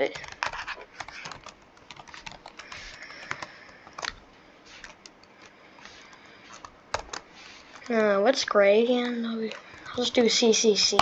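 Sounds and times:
keyboard typing: 0:00.0 - 0:08.2.

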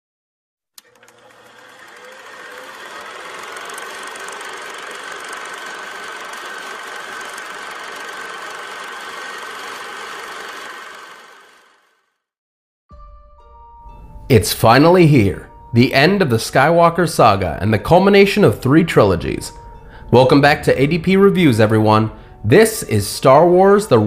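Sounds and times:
film projector clattering: 0:00.8 - 0:11.9.

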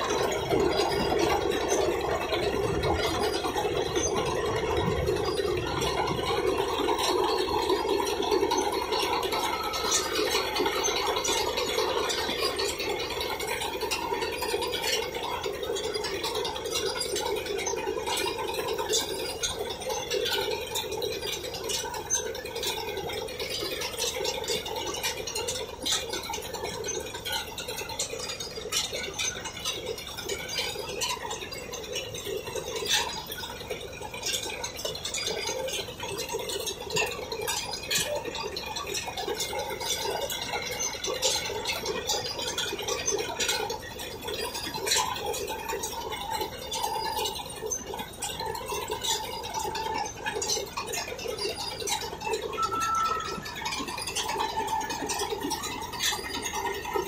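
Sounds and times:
machine rattling and clicking: 0:00.0 - 0:57.0
harvester machine drone: 0:51.6 - 0:57.0.

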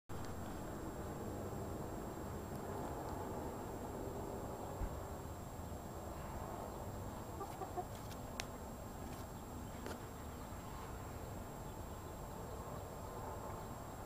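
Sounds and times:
chicken clucking softly: 0:07.4 - 0:08.0.

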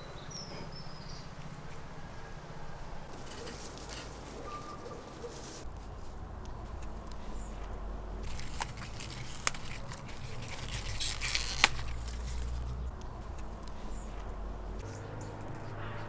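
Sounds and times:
leaves rustling: 0:00.0 - 0:16.0
onion stalks snapping: 0:08.2 - 0:13.8.

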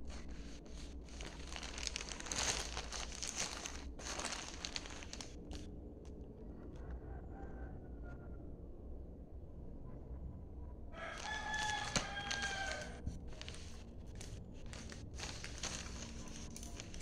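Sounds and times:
plastic mailer pouch crinkling: 0:00.0 - 0:05.7, 0:11.0 - 0:17.0.

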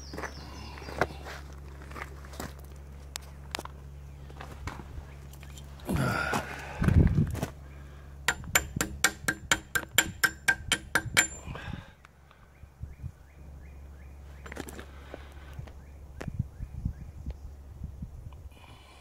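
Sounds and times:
hammer striking metal ringing: 0:08.3 - 0:11.4.

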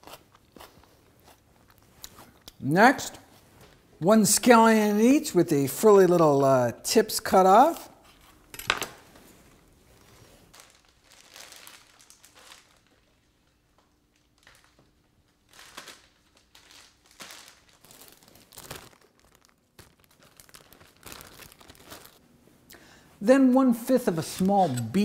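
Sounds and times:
plastic bags crinkling: 0:10.5 - 0:22.3.

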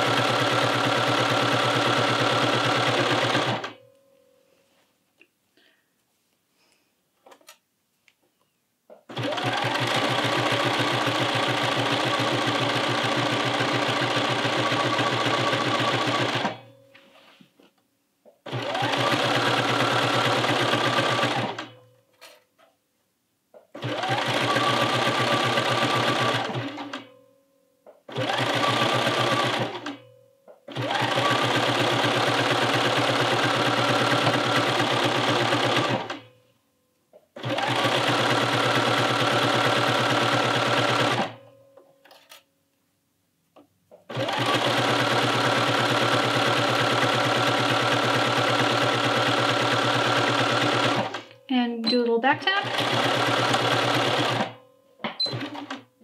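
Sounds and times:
sewing machine stitching: 0:00.0 - 0:03.8, 0:09.0 - 0:16.7, 0:18.4 - 0:21.8, 0:23.7 - 0:27.1, 0:28.1 - 0:30.0, 0:30.7 - 0:36.3, 0:37.4 - 0:41.4, 0:44.0 - 0:55.9.

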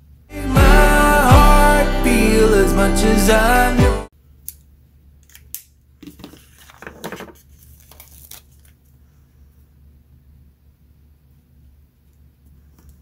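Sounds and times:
paper crinkling: 0:06.2 - 0:09.1.

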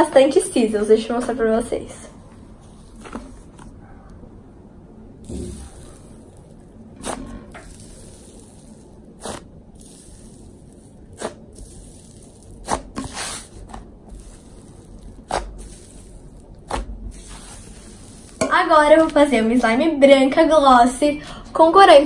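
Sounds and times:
slime air bubbles popping: 0:05.2 - 0:06.4.

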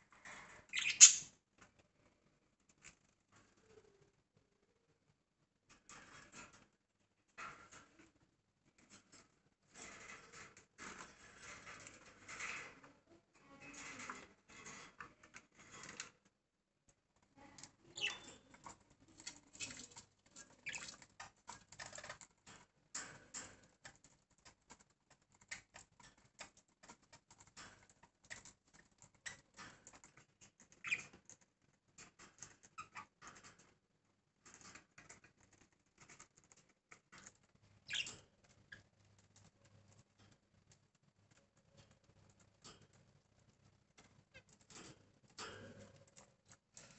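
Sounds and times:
birds scratching and tapping in cage: 0:00.1 - 0:01.9, 0:05.7 - 0:46.9
high falling bird chirps: 0:00.7 - 0:01.3.

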